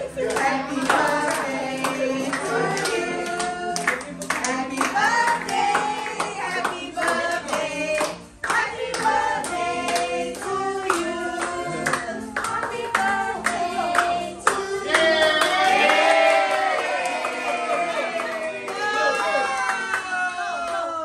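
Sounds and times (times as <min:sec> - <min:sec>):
group singing birthday song: 0:00.0 - 0:18.6
hand clapping: 0:00.2 - 0:18.9.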